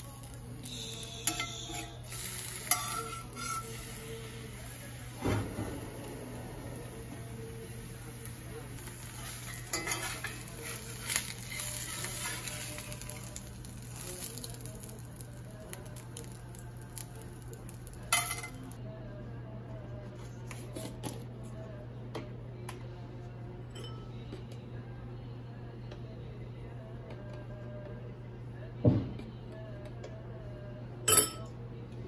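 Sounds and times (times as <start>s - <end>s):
spatula scraping in skillet: 0.1s - 14.9s.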